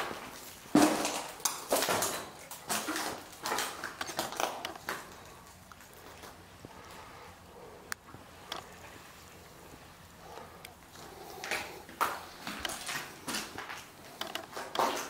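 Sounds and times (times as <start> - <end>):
footsteps crunching on broken glass: 0.0 - 6.4, 11.4 - 15.0.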